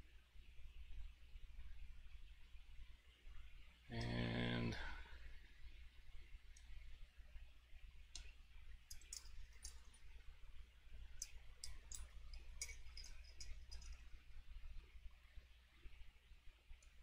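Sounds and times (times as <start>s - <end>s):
low steady hum: 0.0s - 17.0s
metal tools clicking: 8.9s - 9.9s, 11.2s - 14.0s.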